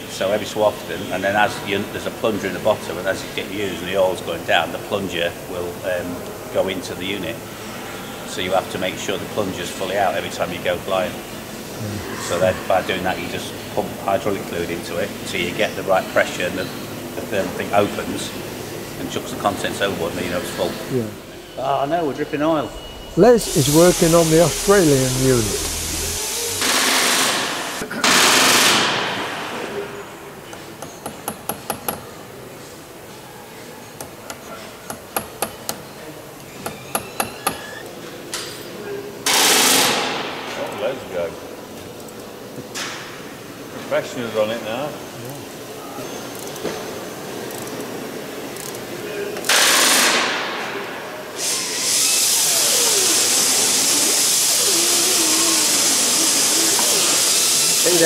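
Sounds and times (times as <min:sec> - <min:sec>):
compressed air hissing: 0:22.6 - 0:27.8.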